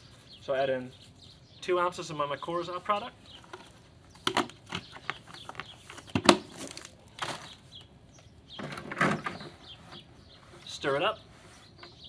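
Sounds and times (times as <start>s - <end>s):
plastic rustling: 4.4s - 7.8s.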